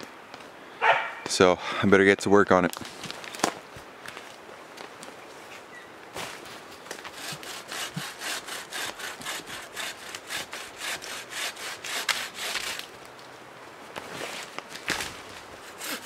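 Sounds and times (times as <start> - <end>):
hand saw cutting branch: 6.9 - 12.9, 15.5 - 16.0.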